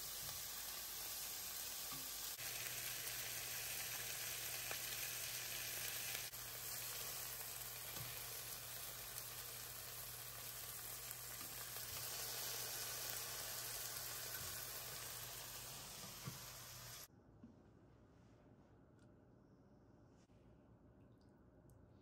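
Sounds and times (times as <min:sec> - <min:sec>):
fish and vegetables sizzling in pan: 0:00.0 - 0:17.1.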